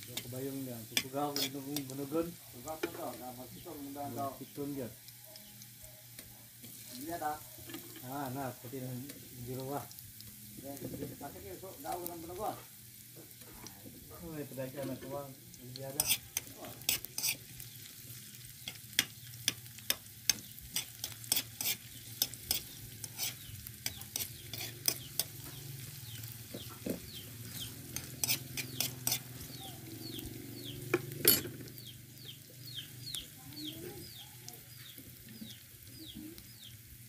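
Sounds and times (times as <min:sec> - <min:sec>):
food sizzling in oil: 0:00.0 - 0:37.0
metal spoon scraping wok: 0:00.1 - 0:03.2, 0:06.6 - 0:08.4, 0:15.8 - 0:17.8, 0:18.6 - 0:26.2, 0:26.8 - 0:31.9
bird chirping: 0:21.9 - 0:36.8.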